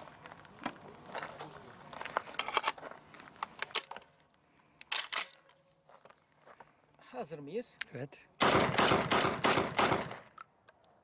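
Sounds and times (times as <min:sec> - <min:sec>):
shotgun shells clicking and rattling: 0:04.8 - 0:05.6.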